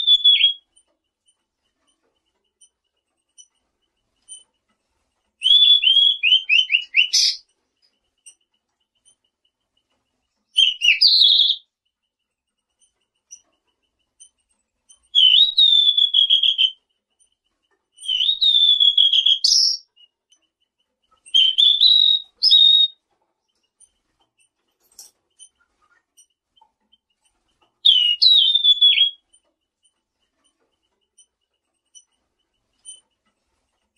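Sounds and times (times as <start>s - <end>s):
songbird whistling: 0.0s - 0.7s, 5.4s - 7.4s, 10.6s - 11.7s, 15.1s - 16.8s, 18.0s - 20.1s, 21.3s - 23.0s, 27.8s - 29.2s.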